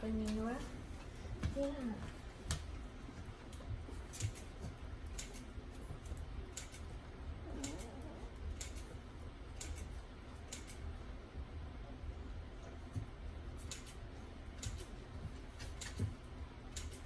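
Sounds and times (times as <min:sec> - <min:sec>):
low steady hum: 0:00.0 - 0:17.0
puppy claws clicking on floor: 0:03.4 - 0:06.9, 0:13.6 - 0:17.0.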